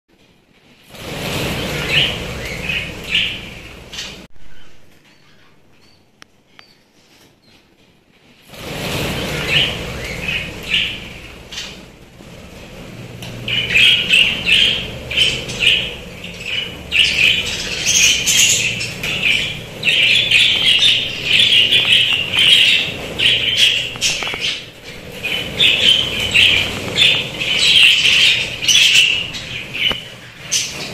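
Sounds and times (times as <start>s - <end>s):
budgerigars chirping: 1.0s - 5.6s, 8.6s - 30.9s.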